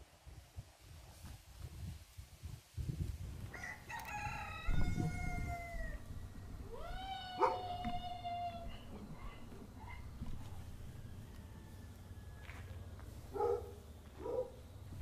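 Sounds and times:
rooster crowing: 3.5s - 12.8s.

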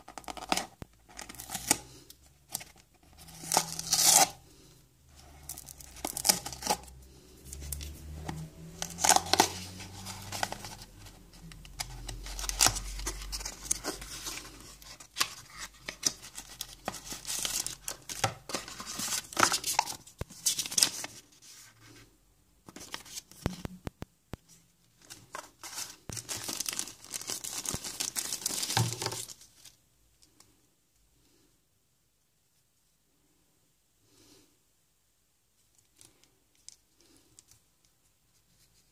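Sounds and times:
plastic wrapper tearing and crinkling: 3.2s - 4.4s, 5.4s - 7.0s, 8.6s - 21.2s, 25.6s - 29.8s
cardboard box being opened: 8.8s - 21.2s.

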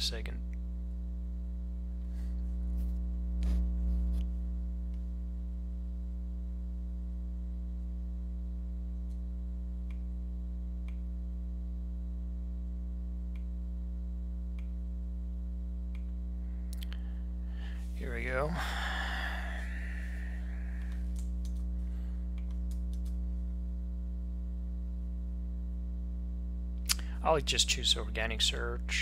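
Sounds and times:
electrical mains hum: 0.0s - 29.0s
computer mouse clicks: 22.4s - 23.2s.

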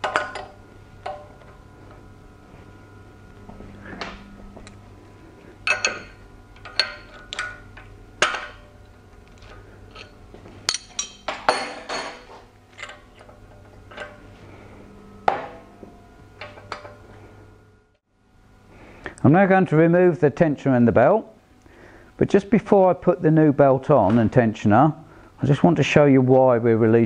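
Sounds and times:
metal tools clinking and knocking: 0.0s - 1.5s, 5.6s - 14.3s.

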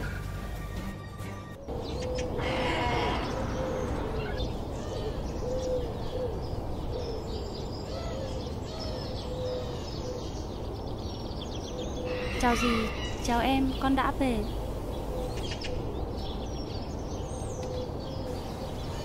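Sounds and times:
small birds chirping: 1.6s - 19.0s
doves cooing: 1.7s - 10.6s.

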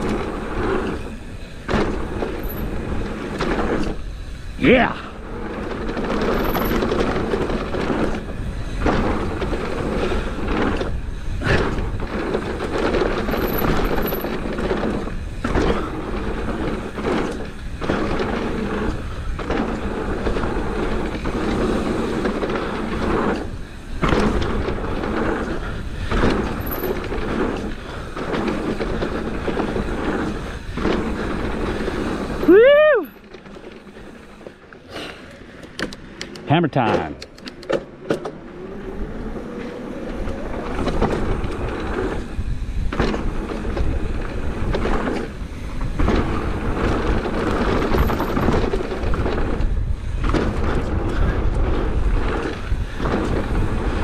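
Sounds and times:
tyre and trail noise: 0.0s - 54.0s
wind buffeting microphone: 37.6s - 54.0s.

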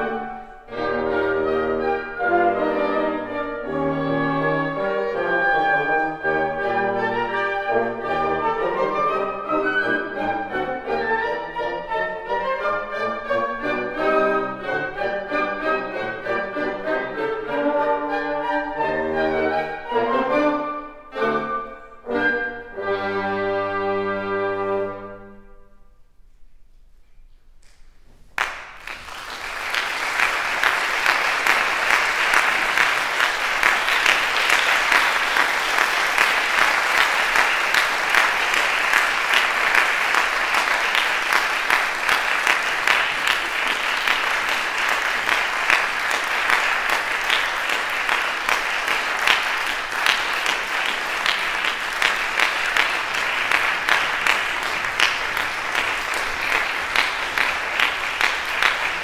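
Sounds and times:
audience applause: 28.4s - 59.0s.

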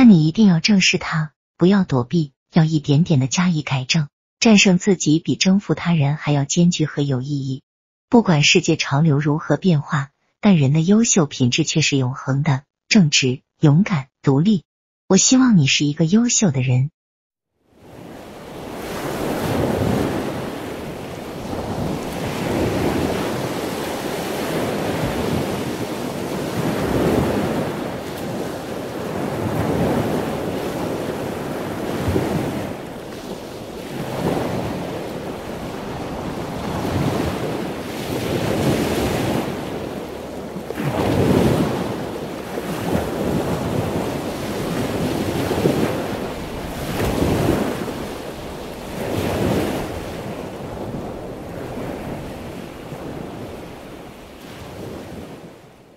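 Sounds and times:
waves washing onto beach: 17.7s - 55.9s.

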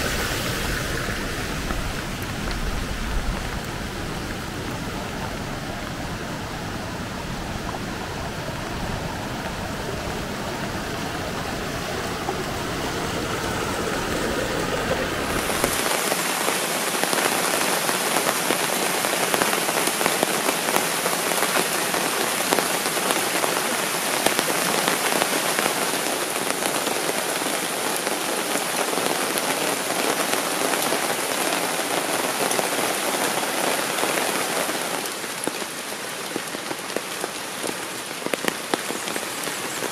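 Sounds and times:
pattering water: 0.0s - 30.2s.

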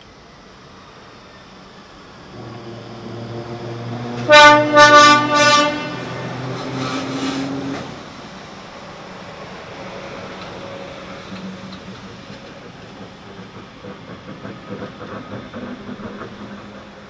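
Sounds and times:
electric train humming past: 0.0s - 17.0s
train horn blasts: 2.4s - 7.9s.

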